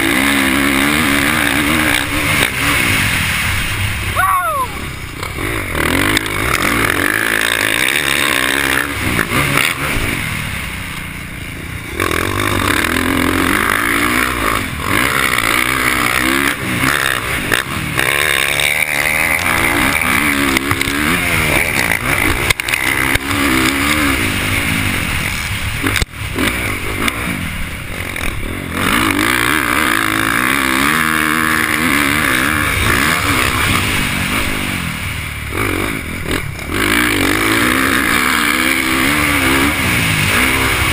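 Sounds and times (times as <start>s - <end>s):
dirt bike engine revving: 0.0s - 40.9s.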